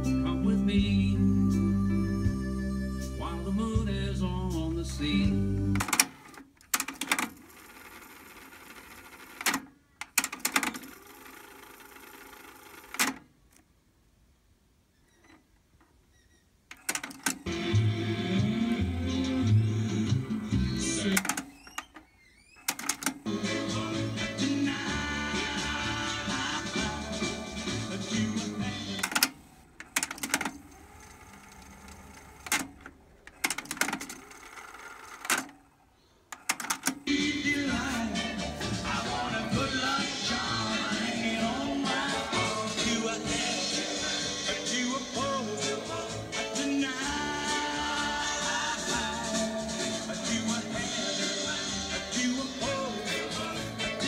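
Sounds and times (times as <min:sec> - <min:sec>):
tape winding whir: 0:05.7 - 0:13.2, 0:16.1 - 0:35.7.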